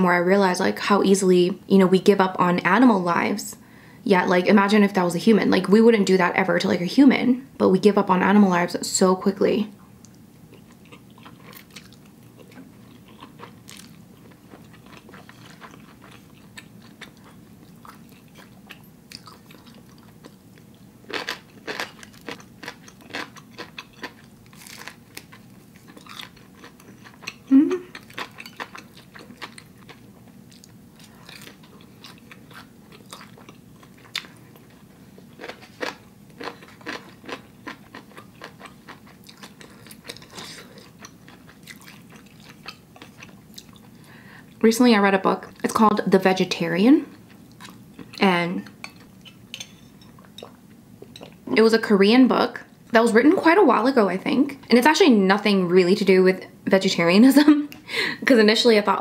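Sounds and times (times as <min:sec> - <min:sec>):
chewing and crunching: 0:10.0 - 0:44.6, 0:47.1 - 0:51.5
person humming: 0:27.5 - 0:27.9.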